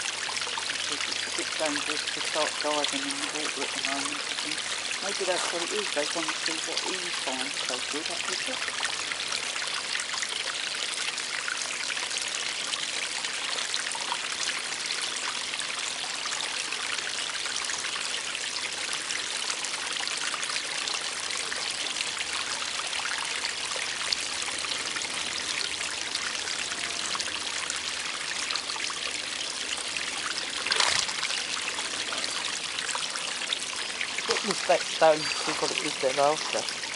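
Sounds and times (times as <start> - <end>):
small waterfall splashing: 0.0 - 36.9.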